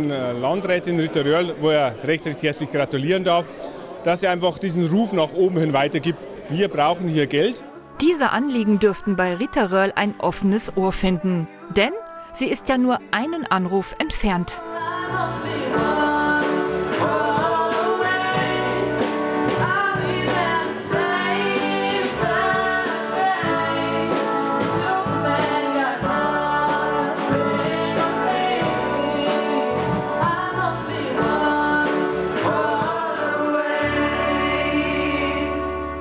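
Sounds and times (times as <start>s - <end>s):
girls singing: 8.0s - 36.0s
guitar: 14.6s - 36.0s.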